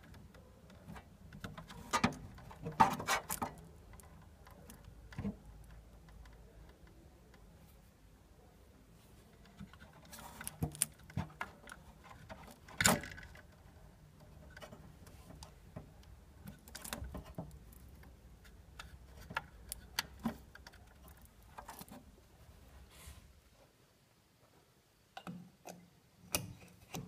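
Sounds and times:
spade connectors clicking on terminals: 0.0 - 7.6, 9.4 - 22.0.

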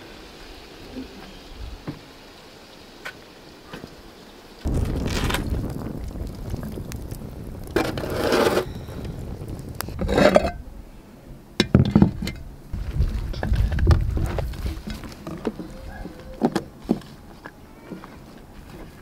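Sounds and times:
firewood knocking on iron plate: 11.6 - 12.4.

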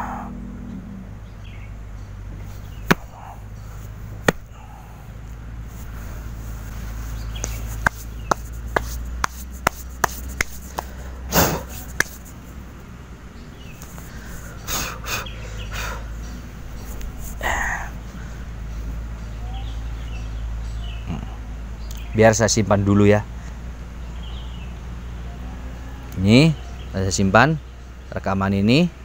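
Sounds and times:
steady low hum: 0.0 - 21.9
sharp knocks: 2.9 - 3.2, 4.2 - 4.6, 7.4 - 10.9.

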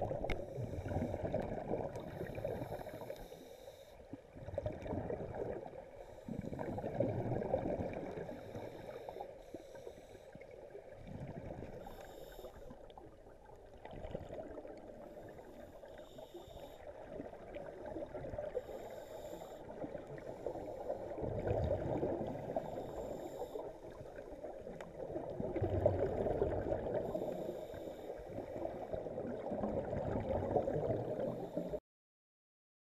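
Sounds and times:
underwater regulator bubbling: 19.8 - 27.8, 28.4 - 31.8.

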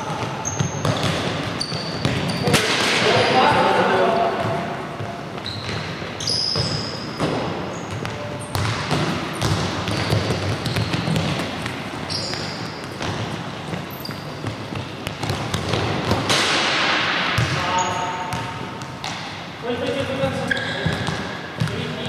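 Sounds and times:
trainers squeaking on floor: 0.0 - 2.6, 5.3 - 8.6, 10.0 - 13.0, 13.8 - 14.8, 20.4 - 21.2
ball kicked and bouncing: 0.1 - 3.7, 4.4 - 19.3.

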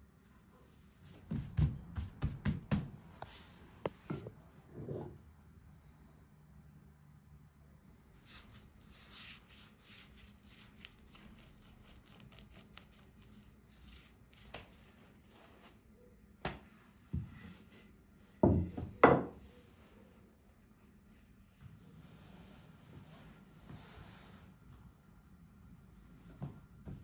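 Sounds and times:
pastry brush stroking dough: 8.1 - 15.8.

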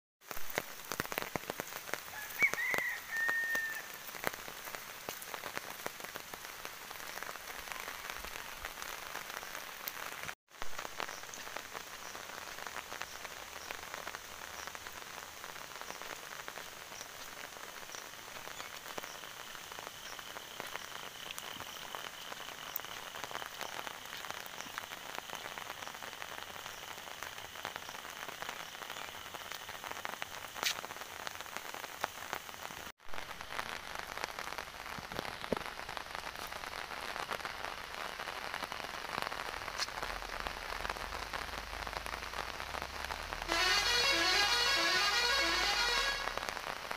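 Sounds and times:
rain on pavement: 0.2 - 46.9
short high whistle-like call: 43.5 - 46.4.

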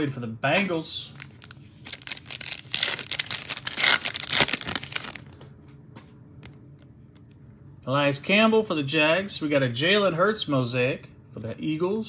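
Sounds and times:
foil wrapper tearing and crinkling: 1.2 - 5.3.

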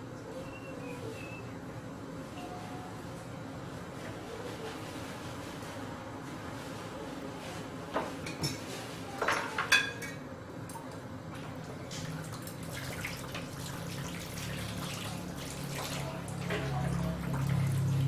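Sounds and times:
utensils clinking against pot: 8.2 - 10.2.

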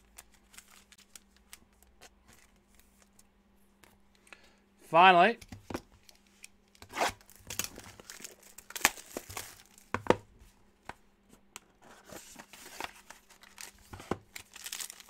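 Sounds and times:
packaging crinkling and tearing: 0.0 - 3.1, 6.8 - 9.9, 12.4 - 15.0.

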